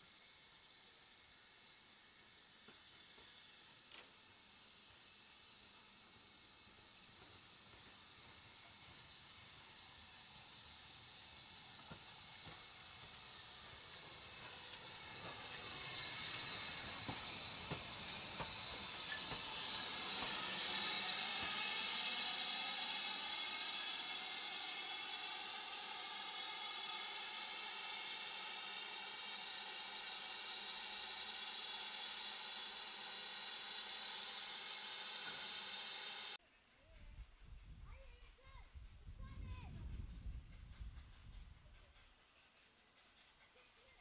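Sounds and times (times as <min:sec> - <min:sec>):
steam locomotive hissing: 0:00.0 - 0:36.4, 0:37.9 - 0:44.0.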